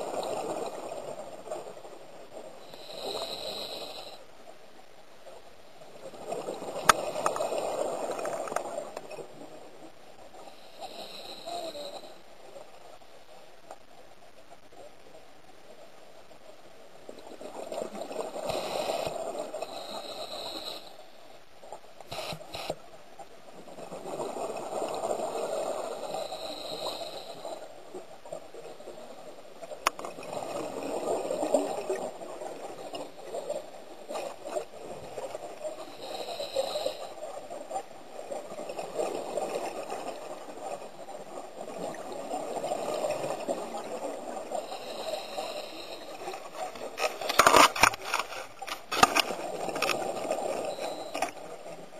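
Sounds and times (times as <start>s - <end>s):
breathing regulator hiss: 2.6s - 4.3s, 10.4s - 12.2s, 18.4s - 21.2s, 22.1s - 22.8s, 25.9s - 27.6s, 35.8s - 37.2s, 44.6s - 46.5s.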